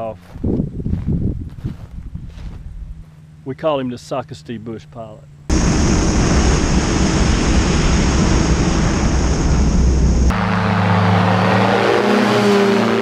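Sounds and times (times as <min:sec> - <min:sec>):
wind rush on microphone: 0:00.3 - 0:03.0, 0:05.5 - 0:10.4
engine and propeller drone: 0:04.2 - 0:13.0.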